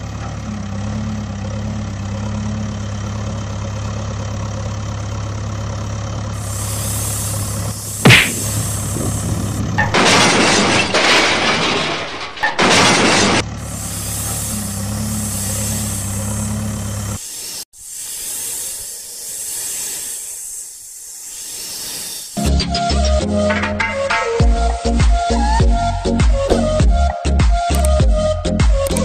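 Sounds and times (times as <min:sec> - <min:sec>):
low engine hum: 0:00.0 - 0:10.2, 0:13.1 - 0:17.2
cobra hissing: 0:06.4 - 0:09.4, 0:13.6 - 0:22.6
noisy crashing rushes: 0:07.9 - 0:13.5.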